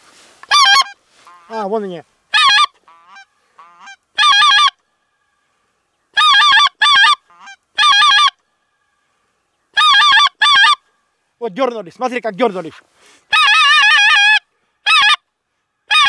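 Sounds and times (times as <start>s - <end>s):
goose honking: 0.4s - 4.8s, 6.1s - 8.4s, 9.7s - 10.8s, 13.3s - 15.2s.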